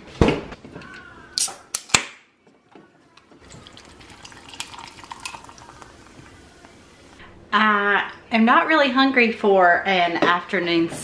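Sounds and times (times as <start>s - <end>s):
ice clicking: 3.4s - 6.3s
soda poured over ice: 3.4s - 7.1s.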